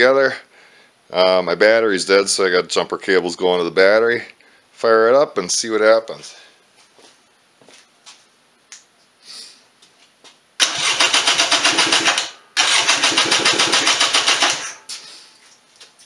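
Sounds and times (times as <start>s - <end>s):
engine cranking with starter: 10.6s - 14.9s.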